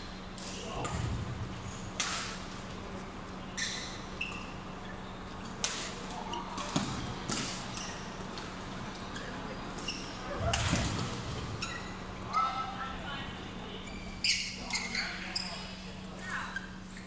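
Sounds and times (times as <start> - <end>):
shoe squeaks on court floor: 3.5 - 5.3, 9.0 - 10.3, 11.5 - 12.5, 13.8 - 15.8.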